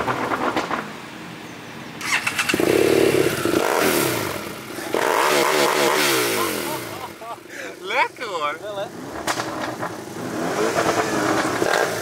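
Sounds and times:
motorcycle engine revving: 2.0s - 7.4s, 8.9s - 12.0s.

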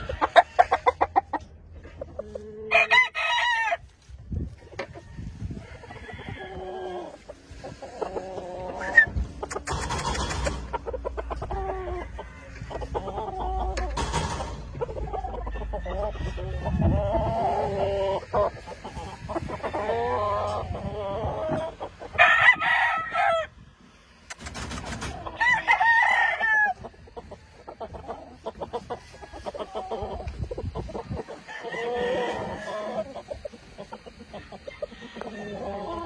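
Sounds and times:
roosters crowing: 0.0s - 1.5s, 2.4s - 4.1s, 4.7s - 36.0s
short clucks: 8.8s - 15.4s.

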